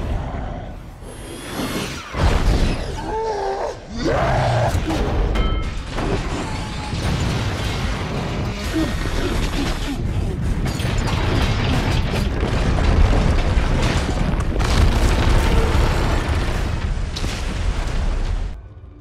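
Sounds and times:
crashes and cracks: 4.1s - 18.6s
deep rumble of falling concrete: 10.8s - 18.6s.

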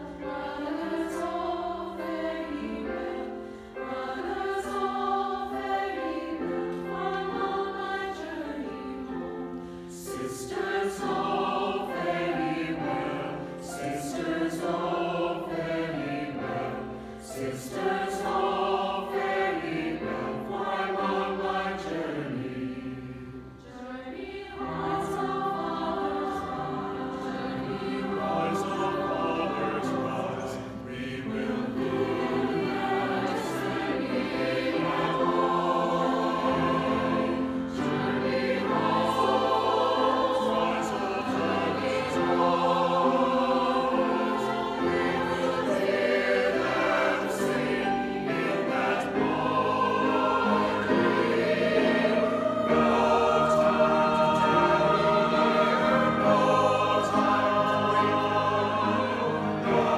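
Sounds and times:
mixed choir singing in harmony: 0.0s - 59.9s
breath: 3.4s - 3.8s.

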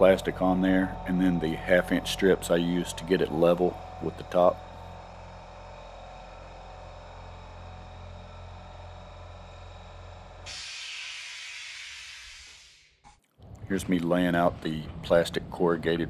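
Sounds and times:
low hum with held tones: 0.0s - 10.6s
even hiss: 10.5s - 12.9s.

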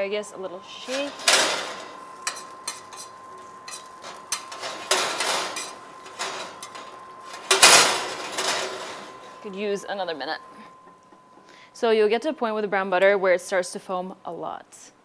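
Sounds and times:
metal tongs clinking and scraping: 0.8s - 9.5s
metal sheet pan rattling: 0.9s - 3.0s, 3.7s - 9.2s.

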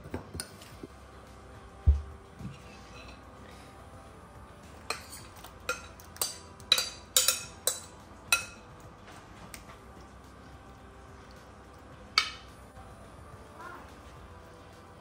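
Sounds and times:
metal spoon clinking against glass bowl: 4.9s - 8.7s, 12.2s - 12.6s.

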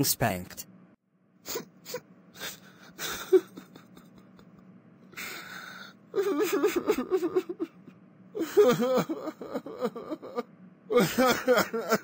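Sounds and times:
breathy sigh: 5.1s - 6.0s
whimpering voice: 6.2s - 7.7s.

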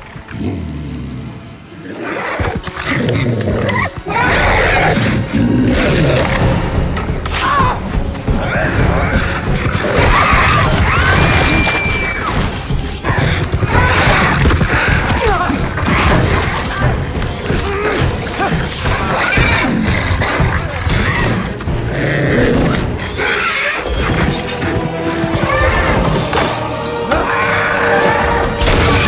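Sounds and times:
creature snarling and growling: 0.0s - 6.6s
dramatic orchestral music: 0.0s - 29.0s
people shouting and crying out: 7.2s - 21.7s, 22.8s - 29.0s
chains and debris clattering: 11.4s - 13.6s, 16.2s - 21.9s, 23.7s - 27.1s.

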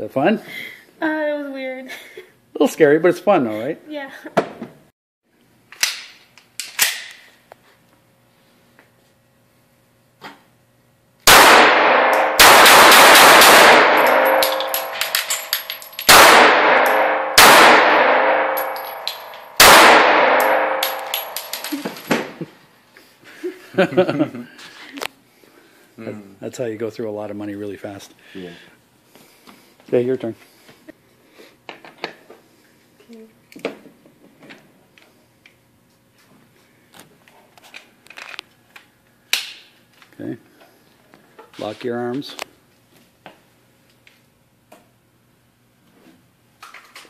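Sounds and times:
pistol handling clicks and knocks: 5.7s - 7.3s, 14.0s - 16.1s, 20.8s - 22.3s
gunshots reverberating indoors: 11.2s - 22.2s.

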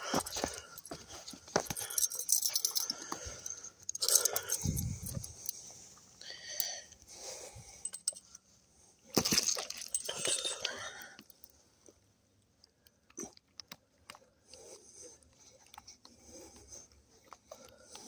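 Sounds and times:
metal tools clinking and jangling: 0.0s - 5.6s, 7.8s - 8.4s, 9.2s - 11.5s.

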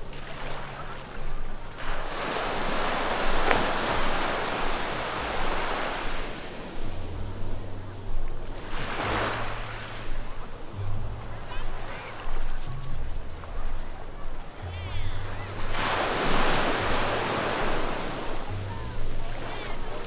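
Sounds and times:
sea waves breaking: 0.0s - 20.0s.

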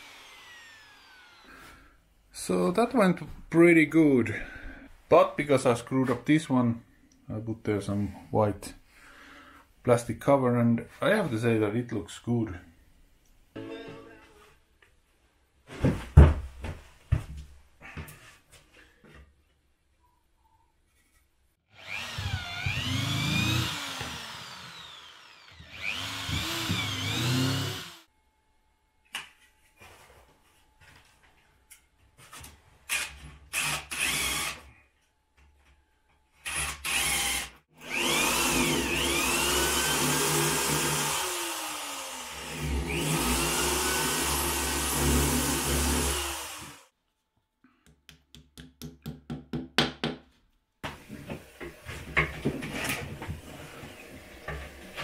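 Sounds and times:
cordless drill motor: 0.0s - 1.7s, 21.7s - 28.1s, 32.9s - 34.6s, 36.5s - 46.9s.

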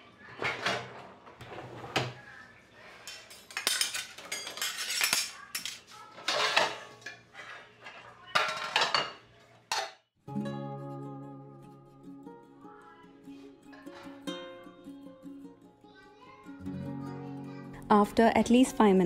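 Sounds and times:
dishes and cutlery clattering: 3.0s - 10.0s.

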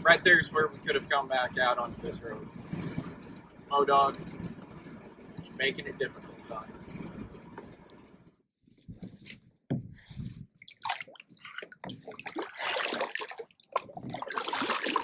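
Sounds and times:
water dripping from paddle: 10.6s - 15.0s
paddle splashing through water: 10.7s - 15.0s.

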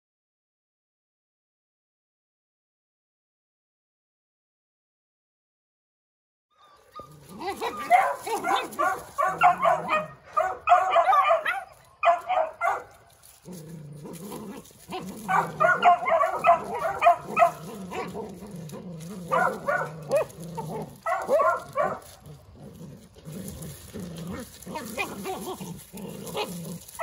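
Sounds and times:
puppies yipping and barking: 6.5s - 27.0s
low steady growling: 13.2s - 27.0s.

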